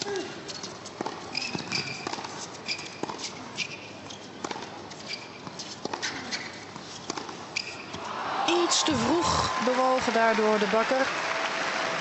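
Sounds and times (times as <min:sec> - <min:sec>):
shoes squeaking on court: 0:00.0 - 0:08.1.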